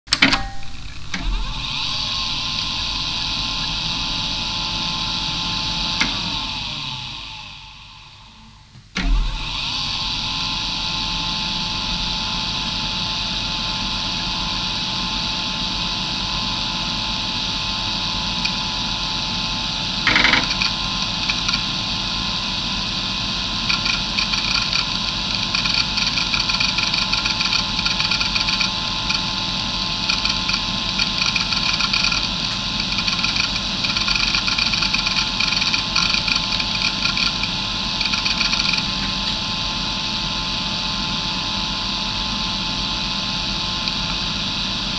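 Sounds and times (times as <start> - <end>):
hard drive whine and hum: 0.1 - 44.9
hard drive head seek chatter: 18.2 - 22.6, 23.4 - 39.4.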